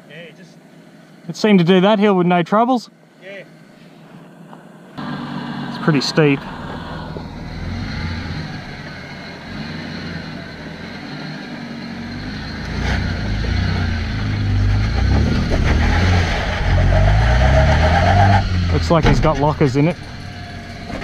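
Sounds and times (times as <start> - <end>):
engine labouring uphill: 4.3 - 21.0.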